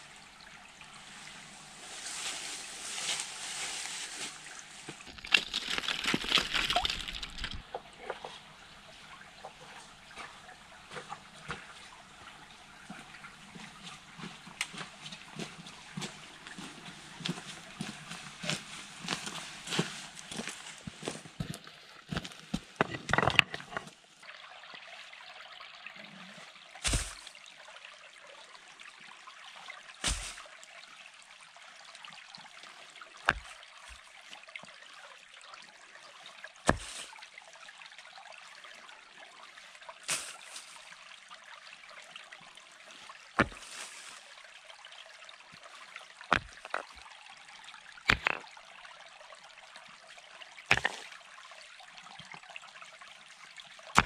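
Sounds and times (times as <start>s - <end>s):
stream over stones: 0.0s - 54.0s
stone-on-stone clack: 48.1s - 48.4s, 50.7s - 51.0s.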